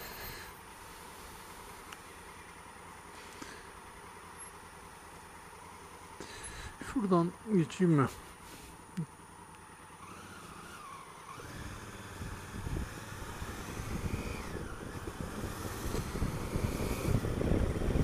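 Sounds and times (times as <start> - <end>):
motorcycle engine pulling away: 9.4 - 18.0
wind buffeting microphone: 11.4 - 18.0.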